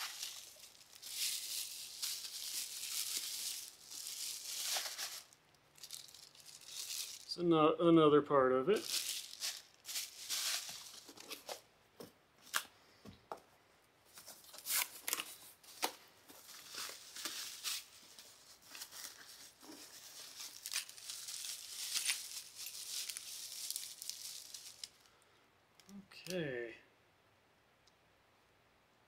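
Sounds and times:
bubble wrap crinkling: 0:00.0 - 0:07.4, 0:08.7 - 0:11.7, 0:14.1 - 0:25.2.

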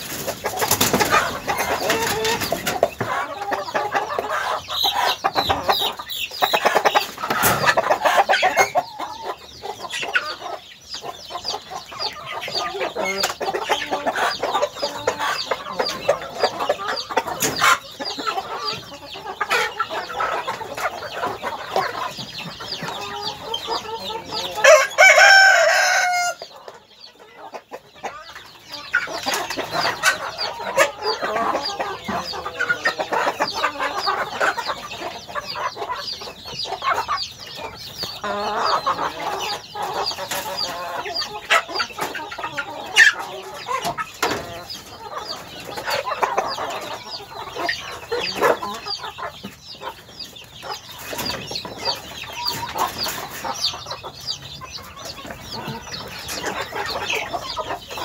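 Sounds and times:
chickens clucking: 0:00.0 - 0:58.0
rooster crowing: 0:24.6 - 0:26.4.

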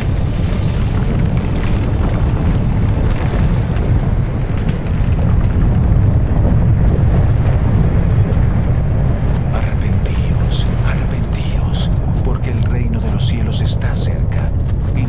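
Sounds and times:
deep rumble: 0:00.0 - 0:15.0.

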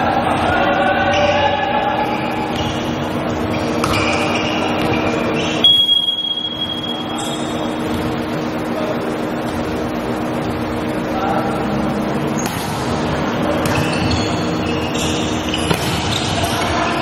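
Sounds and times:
players calling out: 0:00.0 - 0:17.0
steady hum of indoor hall: 0:00.0 - 0:17.0
volleyball being hit: 0:03.6 - 0:07.2, 0:12.4 - 0:16.9.

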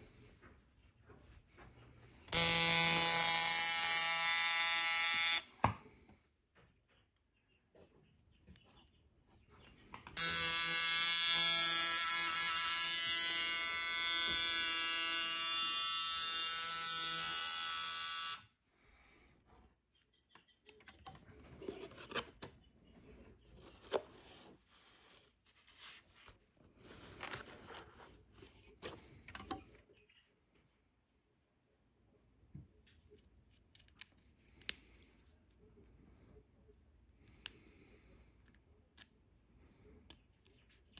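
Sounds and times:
tattoo machine electric buzz: 0:02.3 - 0:05.5, 0:10.2 - 0:18.5.

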